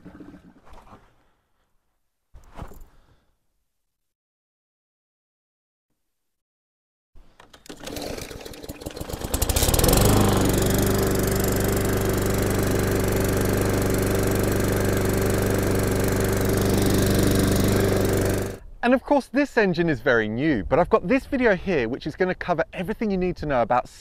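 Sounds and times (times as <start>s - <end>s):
lawn mower engine starting and running: 7.2s - 18.6s.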